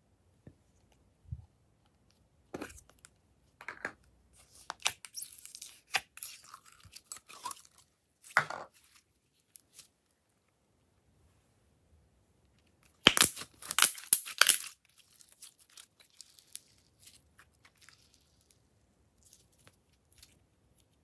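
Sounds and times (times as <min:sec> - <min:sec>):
sticky slime crackles: 0:13.0 - 0:18.6.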